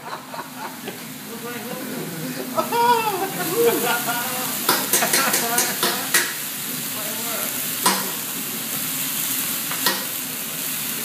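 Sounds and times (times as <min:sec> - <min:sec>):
food sizzling on a griddle: 0:00.0 - 0:11.0
spatulas clicking on metal: 0:04.7 - 0:06.4.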